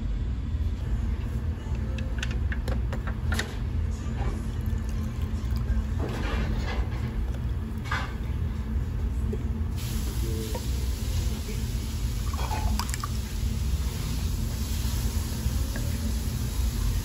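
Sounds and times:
soda pouring and fizzing: 11.8s - 15.0s.

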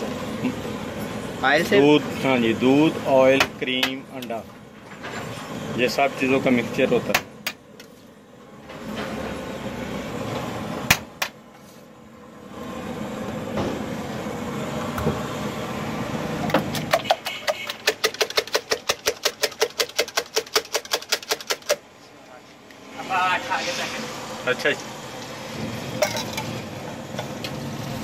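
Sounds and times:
fast metallic tapping: 16.7s - 21.8s.

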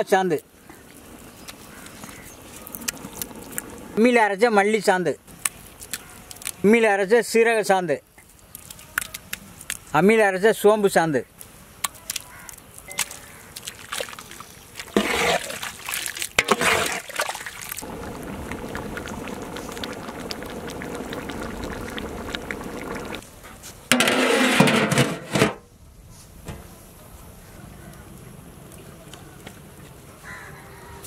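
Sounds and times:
ladle sloshing gravy in pot: 13.7s - 23.2s
gravy bubbling simmer: 13.7s - 23.3s.

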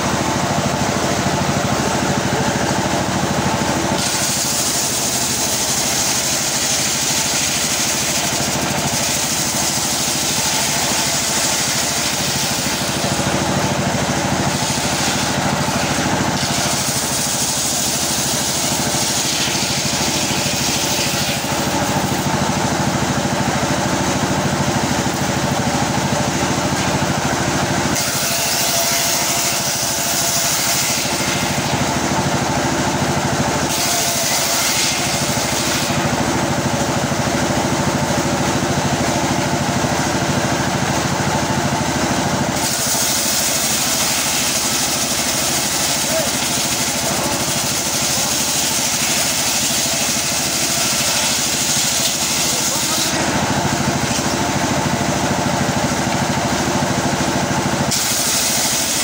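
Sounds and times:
saw blade ripping log: 4.0s - 22.3s, 27.8s - 31.9s, 33.6s - 36.3s, 42.5s - 54.4s, 57.9s - 59.0s.

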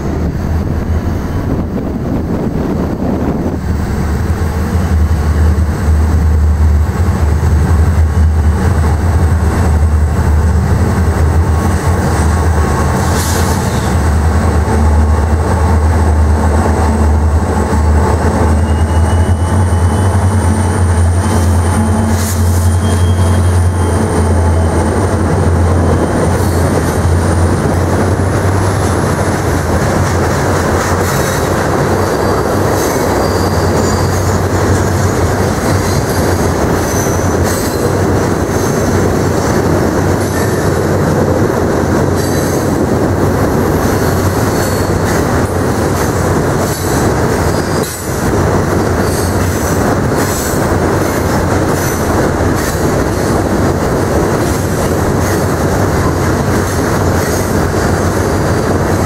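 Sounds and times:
diesel locomotives droning: 0.0s - 59.0s
faint high wheel squeal: 18.6s - 24.0s, 31.9s - 34.6s.

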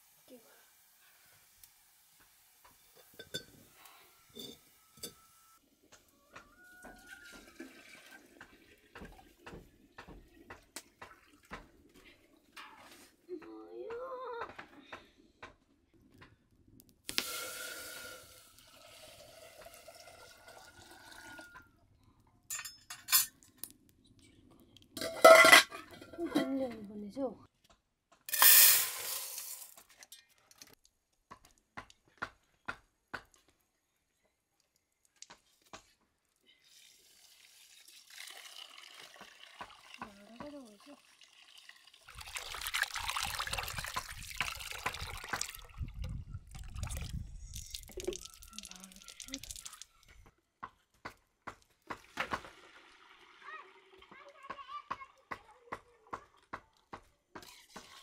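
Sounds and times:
kitchenware clinking: 3.0s - 3.6s, 22.5s - 23.4s, 25.0s - 26.8s
water pouring into vessel: 7.2s - 9.3s, 17.1s - 21.5s, 36.7s - 40.0s, 40.8s - 50.1s.

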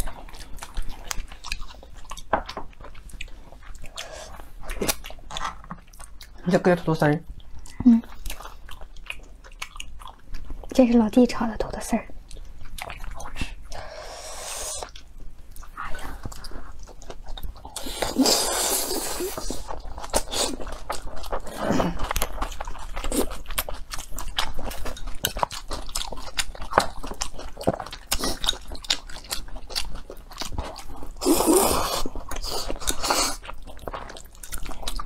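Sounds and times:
person chewing and crunching: 0.0s - 6.7s, 7.3s - 10.9s, 12.1s - 35.0s
slurping noodles: 17.8s - 20.6s.

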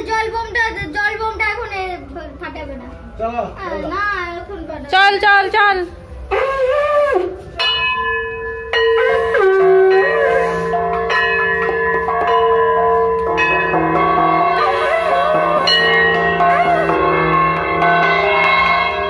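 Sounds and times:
long held low tone: 6.3s - 19.0s
plate gong struck with stick: 7.6s - 19.0s.

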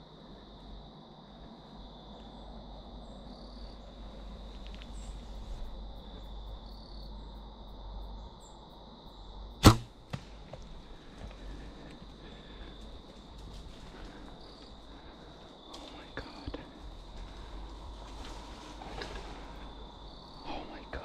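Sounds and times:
crickets trilling: 0.0s - 21.0s
arrow striking: 9.6s - 10.5s
bow shot crack and thump: 9.6s - 10.6s.

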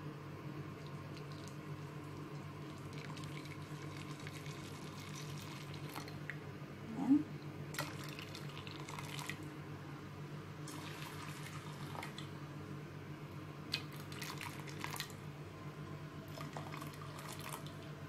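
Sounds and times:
liquid trickling and dripping: 0.8s - 6.4s, 7.7s - 9.4s, 10.7s - 12.3s, 13.7s - 15.2s, 16.3s - 18.0s.

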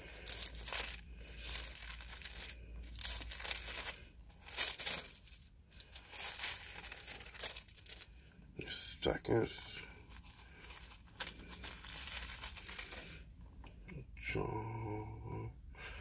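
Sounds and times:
pages being turned: 0.0s - 8.1s, 10.0s - 13.2s.

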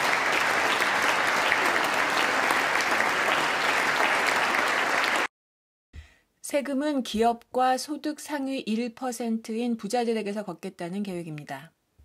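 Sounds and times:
large audience applauding: 0.0s - 5.3s.

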